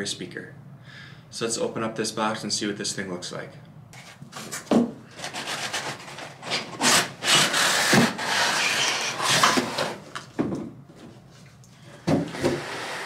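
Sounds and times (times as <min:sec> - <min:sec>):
cardboard scraping and rubbing: 0:04.0 - 0:07.1.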